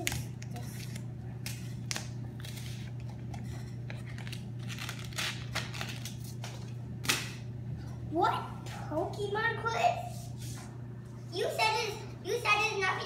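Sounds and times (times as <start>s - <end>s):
wrapping paper tearing: 0.0s - 3.0s, 4.0s - 7.4s
steady low hum: 0.0s - 13.0s.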